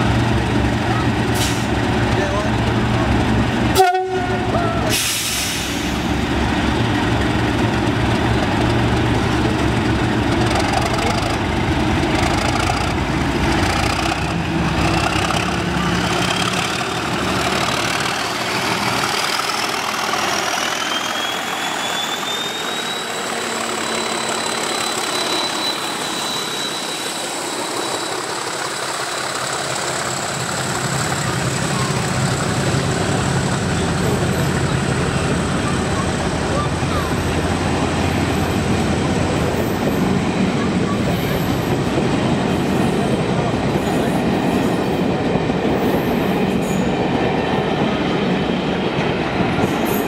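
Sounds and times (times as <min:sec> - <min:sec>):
diesel locomotives pulling away: 0:00.0 - 0:50.0
turbocharger whistle: 0:20.8 - 0:28.1.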